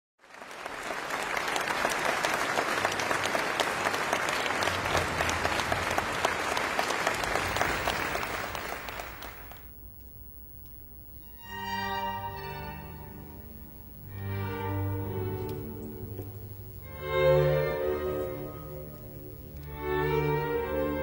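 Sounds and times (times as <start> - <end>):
audience applauding: 0.2 - 9.8.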